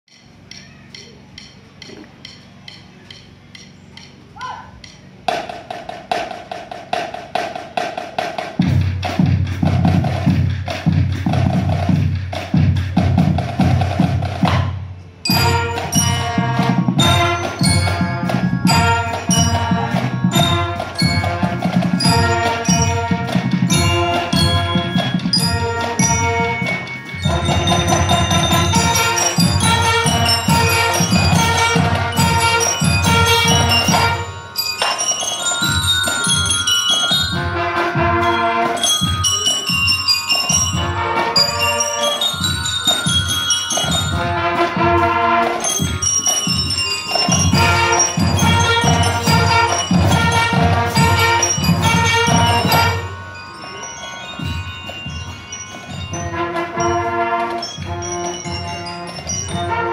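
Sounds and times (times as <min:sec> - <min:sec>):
percussion tick: 0:00.1 - 0:04.2, 0:04.8 - 0:05.1
marching band playing: 0:05.1 - 0:59.9
bell lyres ringing: 0:15.2 - 0:59.9.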